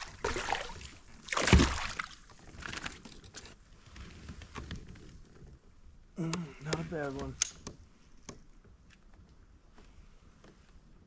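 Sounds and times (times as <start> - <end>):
fish thrashing and splashing: 0.0 - 3.0
water sloshing: 0.0 - 3.1.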